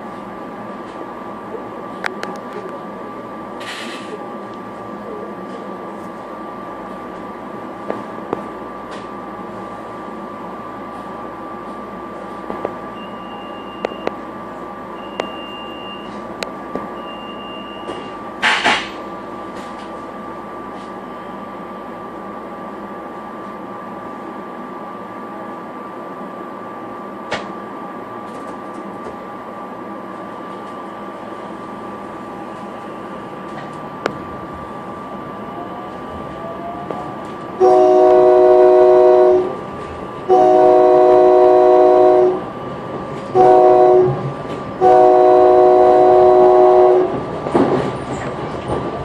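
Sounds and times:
train electrical hum: 0:00.0 - 0:49.0
short loud hiss: 0:03.6 - 0:04.1
short high beeps: 0:13.0 - 0:14.1, 0:15.0 - 0:16.2, 0:17.0 - 0:18.1.

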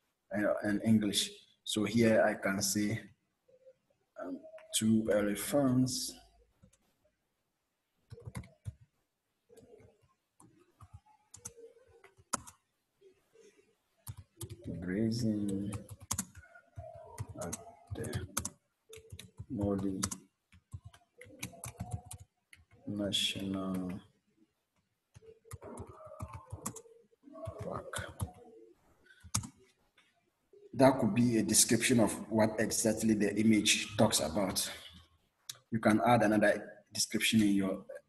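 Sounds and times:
keys tapping on keyboard: 0:15.4 - 0:24.0.

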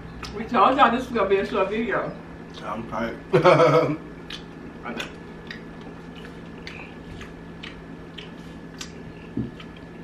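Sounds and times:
chewing and lip-smacking: 0:04.2 - 0:10.0.

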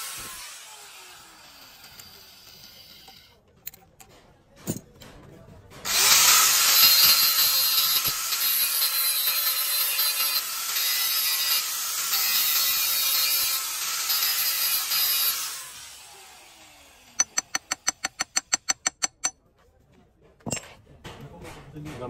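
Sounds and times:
angle grinder grinding steel: 0:00.0 - 0:03.3, 0:05.9 - 0:19.3.

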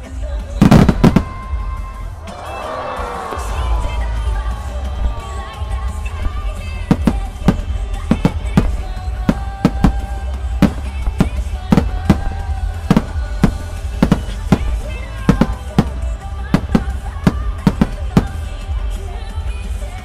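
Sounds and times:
music playing: 0:00.0 - 0:20.0
firework shells bursting: 0:00.6 - 0:01.7, 0:04.9 - 0:18.6.

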